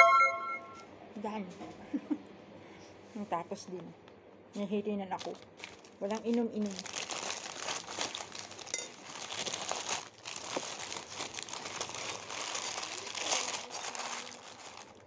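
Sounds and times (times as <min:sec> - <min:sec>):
paper wrapper crinkling: 0:05.2 - 0:15.0.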